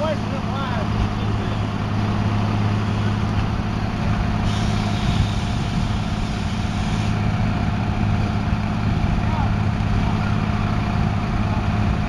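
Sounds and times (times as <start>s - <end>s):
truck engine running: 0.0s - 12.0s
hiss: 4.4s - 7.2s.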